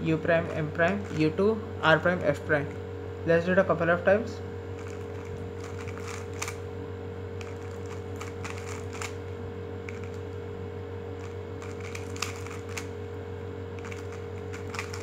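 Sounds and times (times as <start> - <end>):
steady low hum: 0.0 - 15.0
puzzle cube layers clicking: 4.8 - 6.6, 7.4 - 9.2, 11.6 - 12.9, 13.8 - 15.0.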